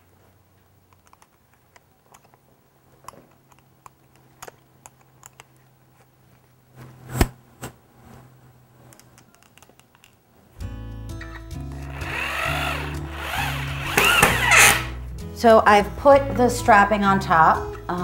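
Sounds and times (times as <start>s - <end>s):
power drill clicks and taps: 13.3s - 14.8s.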